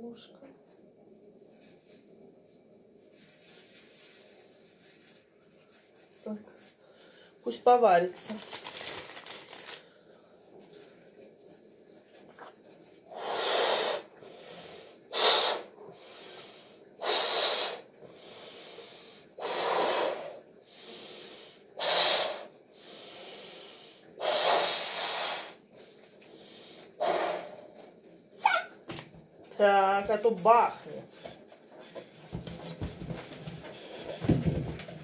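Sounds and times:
person blowing up balloon: 13.1 - 14.1, 15.1 - 15.7, 17.0 - 17.9, 21.8 - 22.5, 24.2 - 25.6, 26.9 - 27.6, 28.4 - 28.8.

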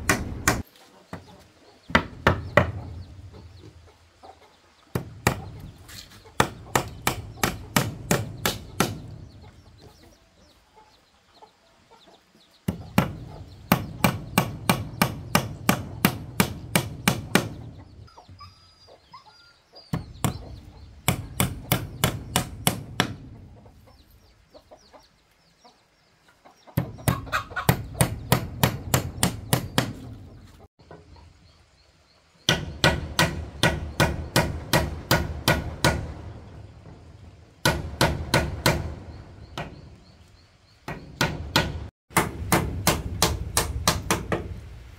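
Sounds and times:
chickens clucking: 0.6 - 28.9, 29.8 - 32.4.

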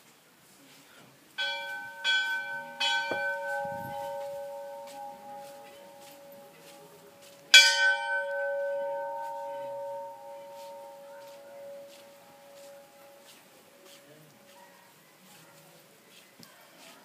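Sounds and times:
temple bell ringing: 1.4 - 13.3.

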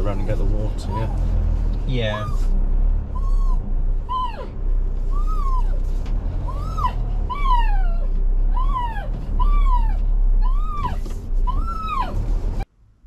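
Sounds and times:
animal calls rising and falling: 0.8 - 4.5, 6.4 - 12.2.

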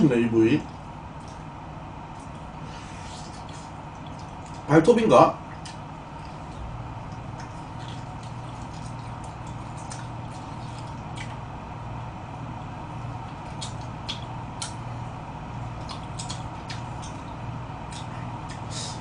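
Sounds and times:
low hum: 0.0 - 19.0
person chewing with mouth smacks: 2.1 - 4.7, 5.4 - 11.4, 13.1 - 15.0, 15.6 - 19.0.

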